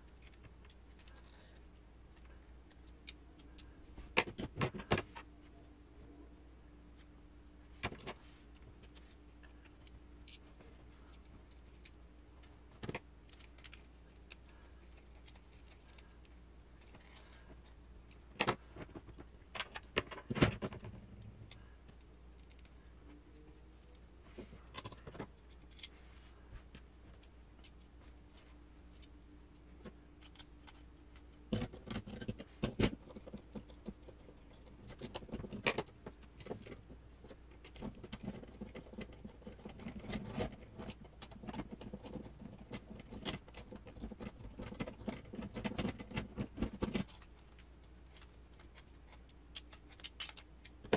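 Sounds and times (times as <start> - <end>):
small metal parts clinking: 21.2 - 23.0.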